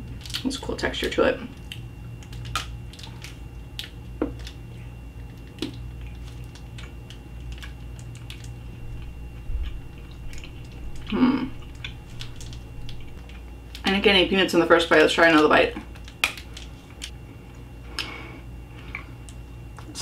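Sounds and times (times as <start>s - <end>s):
chewing chocolate: 0.0s - 14.0s
low hum: 0.0s - 20.0s.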